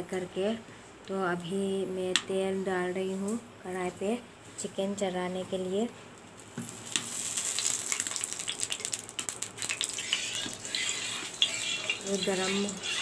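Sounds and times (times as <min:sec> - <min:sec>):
oil sizzling and popping: 0:06.2 - 0:13.0.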